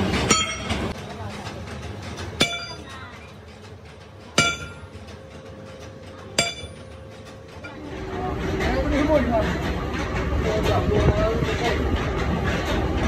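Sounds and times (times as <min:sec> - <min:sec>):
steel shaft ringing: 0:00.2 - 0:01.0, 0:02.4 - 0:03.3, 0:04.2 - 0:07.9.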